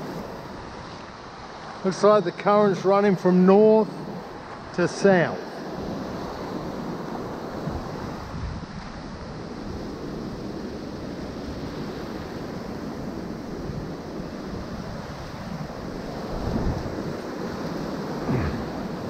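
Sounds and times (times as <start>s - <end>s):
wind rumble on microphone: 5.4s - 19.0s
surf breaking: 16.2s - 19.0s.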